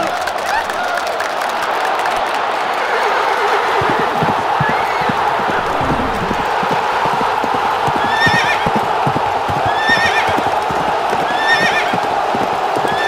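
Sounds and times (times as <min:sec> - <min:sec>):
horse hoofbeats galloping: 0:03.4 - 0:13.0.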